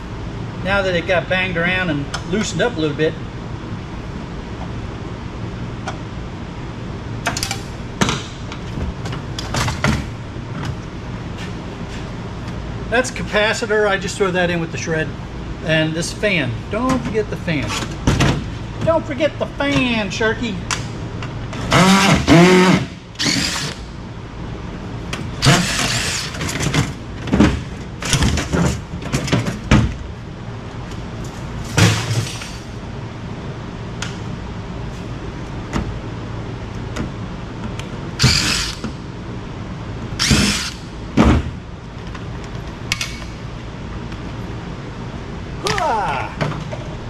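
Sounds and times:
cordless drill whirring: 21.7 - 23.8, 38.2 - 38.8, 40.2 - 40.8.

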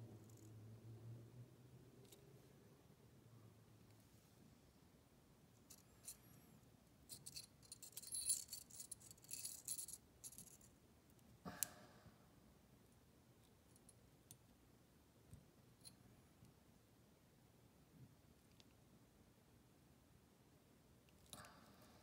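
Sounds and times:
small metal parts clinking: 5.6 - 6.4, 7.1 - 10.7.

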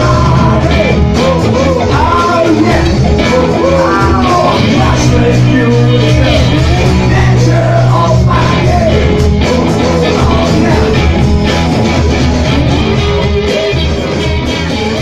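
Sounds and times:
person singing: 0.0 - 11.4
bass guitar: 0.0 - 15.0
drums: 0.0 - 15.0
electric guitars: 0.0 - 15.0.

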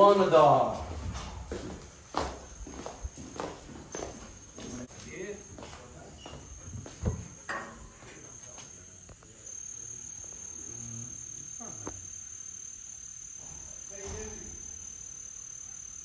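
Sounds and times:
crickets trilling: 0.0 - 16.0.

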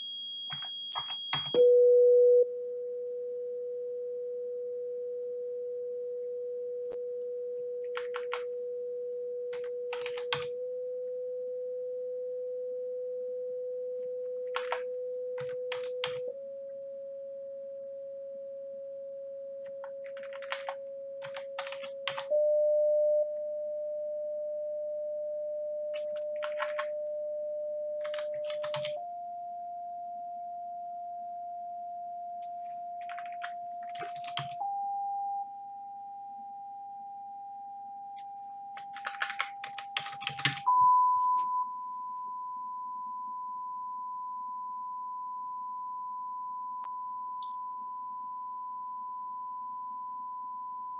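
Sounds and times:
sine test tone stepping up: 0.0 - 9.9, 10.6 - 14.4, 15.0 - 20.1, 22.2 - 33.8, 34.6 - 38.8, 40.7 - 50.9
computer keyboard typing: 0.5 - 1.6, 7.8 - 8.5, 9.5 - 10.6, 14.4 - 16.3, 19.7 - 22.3, 26.0 - 26.9, 28.0 - 29.0, 32.6 - 34.6, 38.7 - 40.7.

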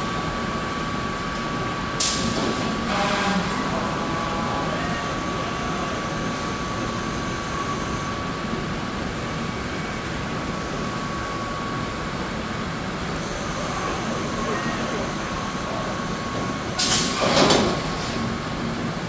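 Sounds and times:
machinery hum and hiss: 0.0 - 19.0.

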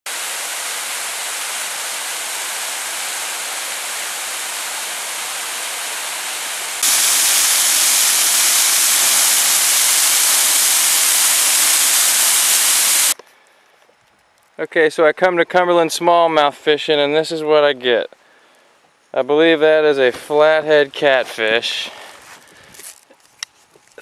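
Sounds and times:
waterfall rushing hiss: 0.1 - 13.2.

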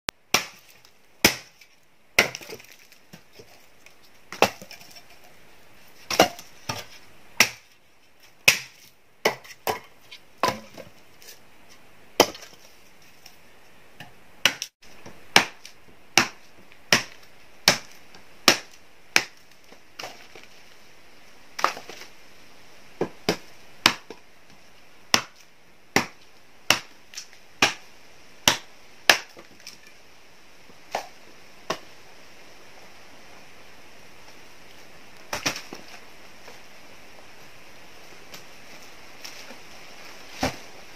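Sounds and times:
steady high hiss: 0.1 - 40.9
wood being chopped: 0.3 - 3.6, 4.3 - 5.1, 6.0 - 7.7, 8.4 - 11.0, 12.2 - 12.7, 14.0 - 20.5, 21.6 - 22.1, 23.0 - 24.2, 25.1 - 29.8, 35.3 - 36.0, 40.4 - 40.7.

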